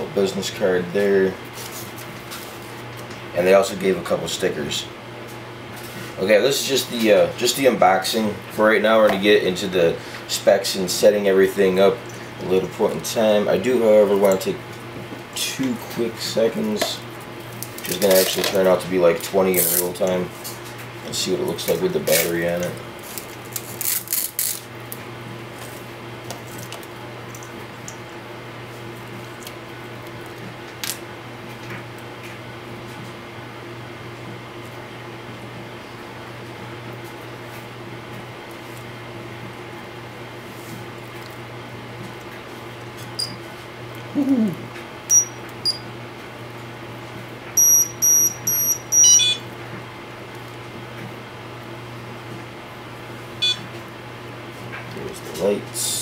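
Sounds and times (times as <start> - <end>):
steady low hum: 0.0 - 56.0
short high-pitched electronic beeps: 45.1 - 45.8, 47.6 - 49.4, 53.4 - 53.6
tones stepping down in pitch: 47.6 - 49.4, 53.4 - 53.6.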